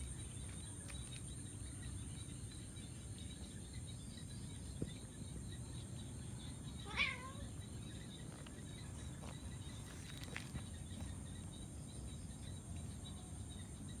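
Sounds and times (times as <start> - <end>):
cat meowing: 6.8 - 7.5.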